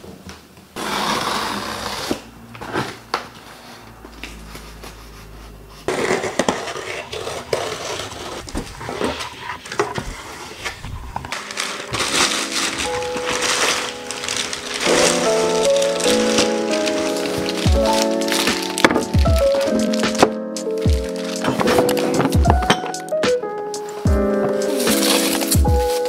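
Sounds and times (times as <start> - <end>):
bubble wrap rustling: 2.9 - 26.0
cardboard box handled: 5.9 - 22.9, 24.0 - 26.0.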